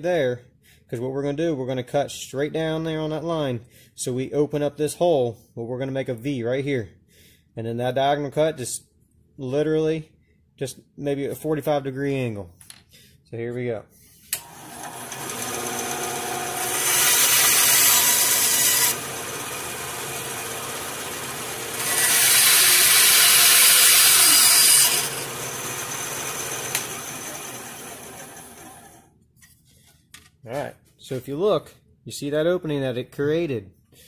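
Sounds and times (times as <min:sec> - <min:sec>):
bandsaw cutting wood: 0:14.4 - 0:29.0
bandsaw motor running: 0:14.4 - 0:29.0.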